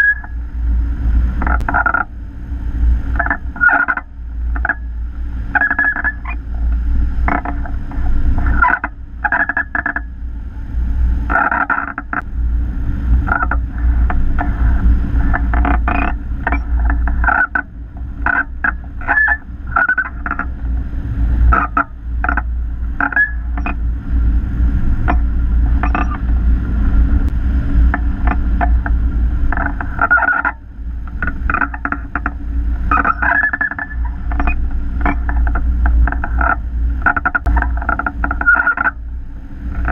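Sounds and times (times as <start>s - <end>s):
wind buffeting microphone: 0.0s - 39.9s
variometer beeping: 15.6s - 16.7s, 32.9s - 35.4s.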